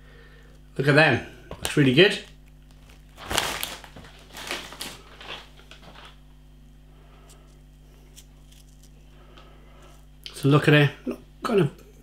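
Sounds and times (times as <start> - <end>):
faint steady hum: 0.0 - 12.0
crisp bag crinkling: 2.7 - 6.2, 8.1 - 9.0.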